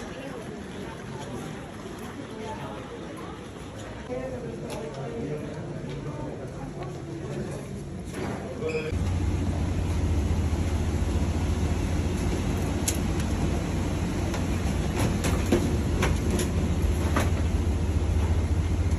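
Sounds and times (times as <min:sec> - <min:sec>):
aircraft cabin hum: 0:09.0 - 0:18.9.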